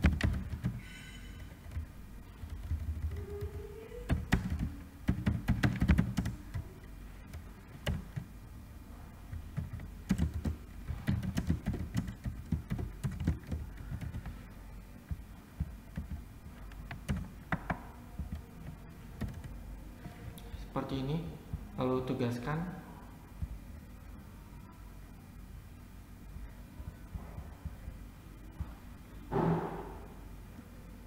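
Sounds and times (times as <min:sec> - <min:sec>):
typing on computer keyboard: 0:00.0 - 0:00.9, 0:02.4 - 0:06.7, 0:07.3 - 0:08.3, 0:09.3 - 0:14.4, 0:15.1 - 0:19.6.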